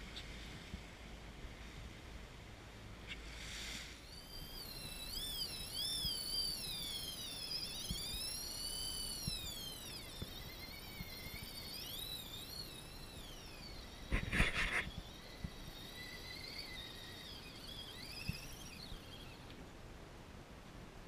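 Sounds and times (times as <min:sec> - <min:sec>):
fishing reel drag screaming: 0:03.4 - 0:19.6.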